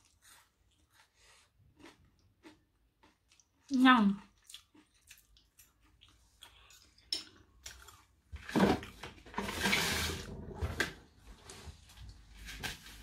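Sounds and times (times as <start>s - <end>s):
soft chewing and mouth clicks: 0.0s - 8.3s.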